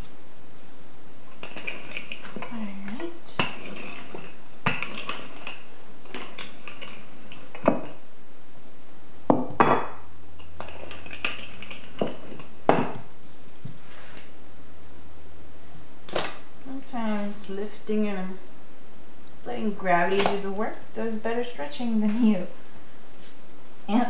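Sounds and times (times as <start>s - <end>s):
rolling pin knocking on countertop: 9.3s - 10.0s, 12.0s - 13.0s.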